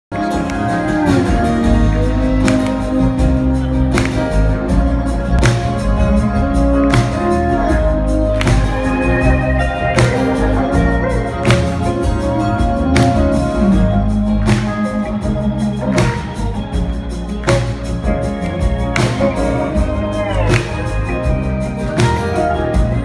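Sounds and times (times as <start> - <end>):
live band instrumental groove: 0.1 - 23.0.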